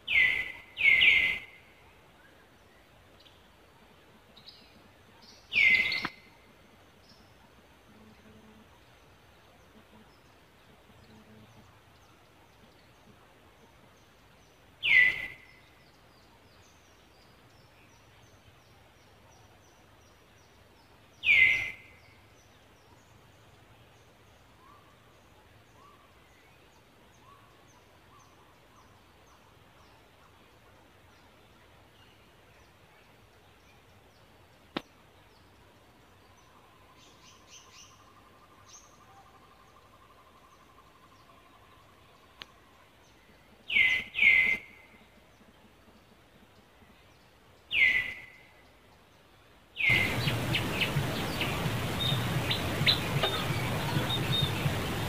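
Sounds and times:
loud downward-sliding calls: 0:49.8 - 0:55.0.

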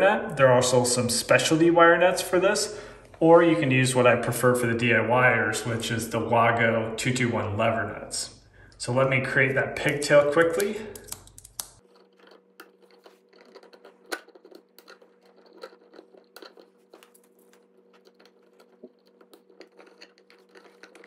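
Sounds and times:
wires scratching and clicking: 0:09.8 - 0:21.0.

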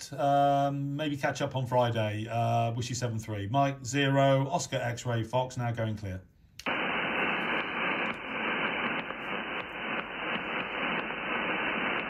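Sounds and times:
radio receiver hiss: 0:06.6 - 0:12.0.

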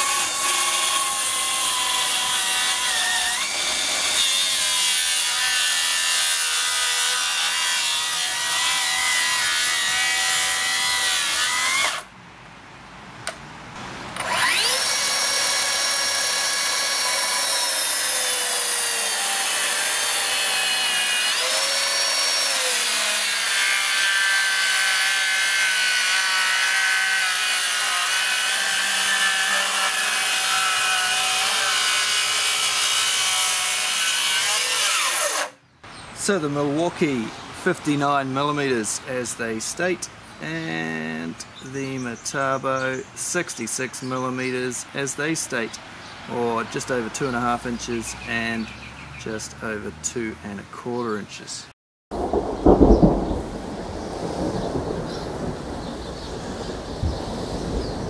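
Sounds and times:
track saw cutting timber: 0:00.0 - 0:12.1, 0:14.1 - 0:35.6
saw motor spinning up whine: 0:14.2 - 0:18.4.

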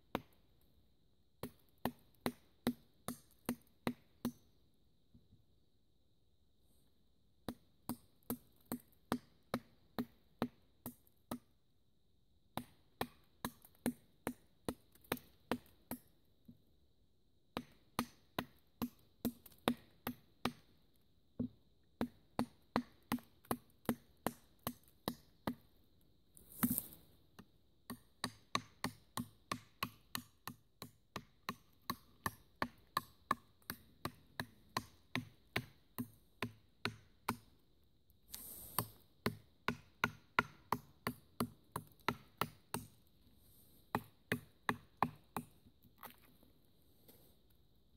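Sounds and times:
knife chopping wood: 0:38.7 - 0:42.9, 0:43.9 - 0:45.5.

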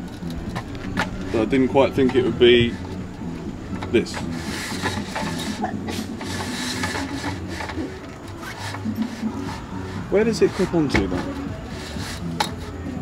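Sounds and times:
knocks and clicks: 0:00.0 - 0:08.4
low hum: 0:00.0 - 0:08.4
metal ladder scraping: 0:00.0 - 0:12.7.

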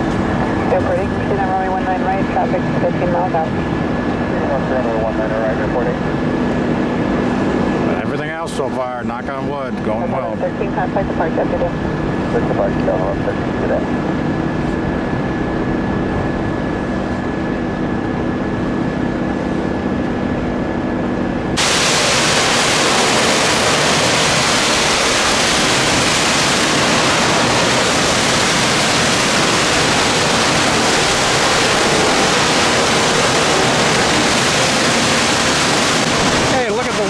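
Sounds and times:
jet engines droning with whine: 0:00.0 - 0:37.0
steady hiss: 0:21.6 - 0:37.0.

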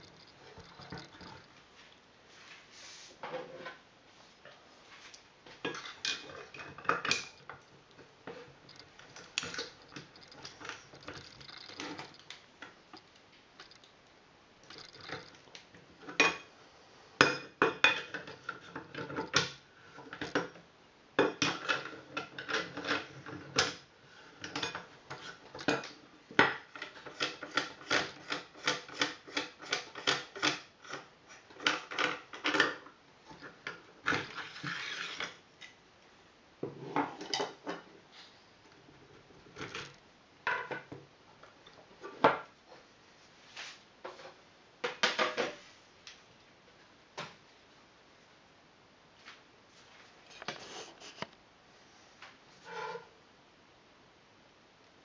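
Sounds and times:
metal clicks and clinks: 0:00.0 - 0:01.5, 0:05.7 - 0:13.9.

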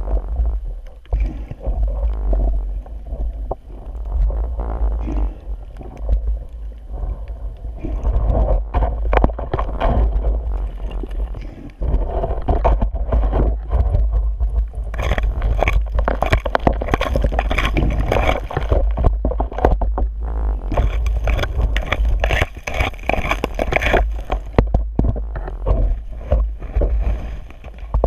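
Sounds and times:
muffled underwater rumble: 0:00.0 - 0:28.0
sand and gravel crackling: 0:00.0 - 0:28.0.

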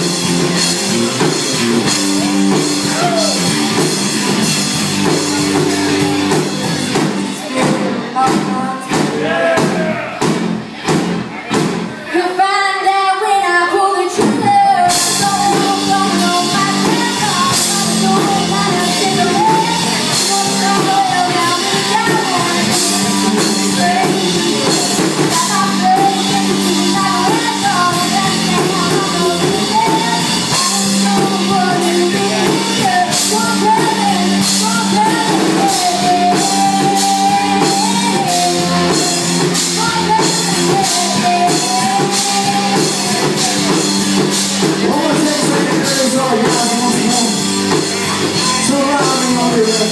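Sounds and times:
drums and cymbals: 0:00.0 - 0:12.0, 0:14.1 - 0:49.9
electric guitars: 0:00.0 - 0:12.2, 0:13.2 - 0:49.9
woman singing: 0:07.4 - 0:09.7, 0:12.1 - 0:47.4.

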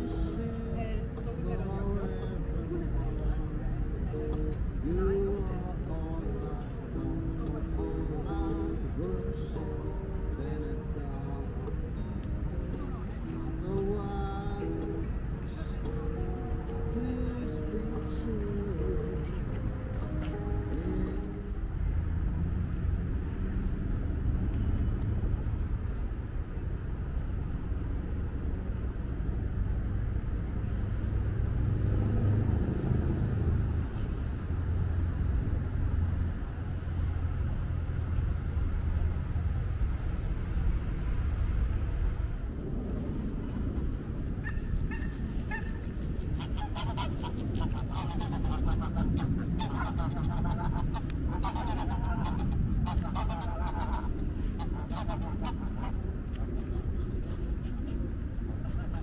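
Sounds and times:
steady low rumble: 0:00.0 - 0:59.0
repeated honking calls: 0:44.4 - 0:56.0.

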